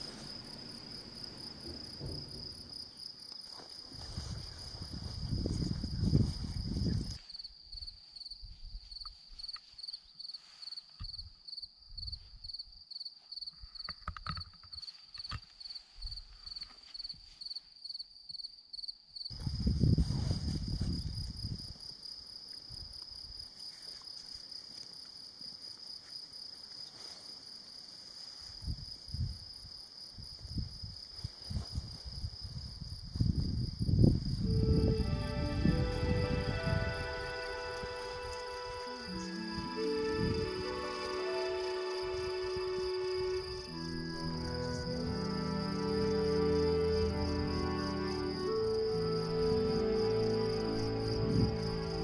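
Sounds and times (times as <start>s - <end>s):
low rumble on microphone: 0.0s - 2.9s
crickets trilling: 0.0s - 52.0s.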